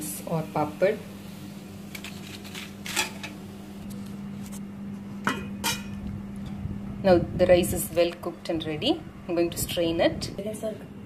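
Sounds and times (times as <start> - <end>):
steady low hum: 0.0 - 11.0
metal pots clinking: 5.2 - 6.0.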